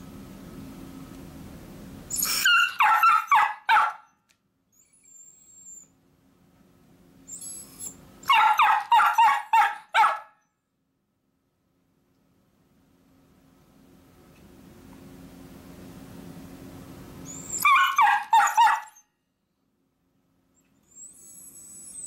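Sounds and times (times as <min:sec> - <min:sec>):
dog whining: 0:02.1 - 0:04.0, 0:04.7 - 0:05.9, 0:07.2 - 0:10.2, 0:17.2 - 0:19.0, 0:20.6 - 0:22.0
small dog barking high: 0:02.2 - 0:04.2, 0:08.2 - 0:10.4, 0:17.5 - 0:19.1.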